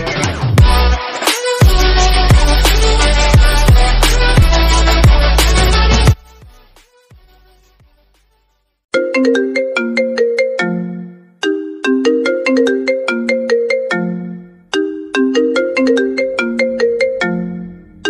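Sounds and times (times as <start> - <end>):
phone ringtone melody: 8.9 - 18.0.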